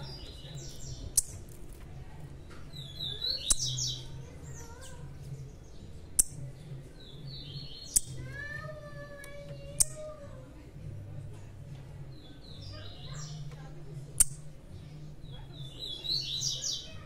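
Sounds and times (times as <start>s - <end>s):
small birds chirping: 0.0s - 17.0s
sharp clicks: 14.2s - 14.4s.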